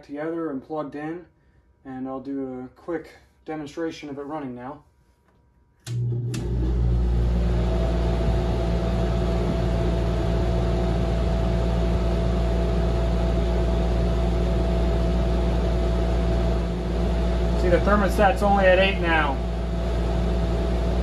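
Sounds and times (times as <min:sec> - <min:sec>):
air conditioner switch clicks: 0:05.8 - 0:06.5
air conditioner humming: 0:05.8 - 0:21.0
steady whine: 0:06.0 - 0:21.0.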